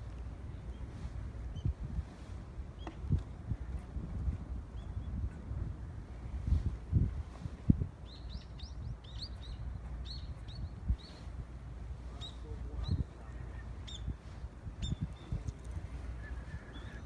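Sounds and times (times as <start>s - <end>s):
wind rumble on microphone: 0.0s - 17.0s
small bird chirping: 8.0s - 11.3s, 13.8s - 14.2s, 14.8s - 15.7s.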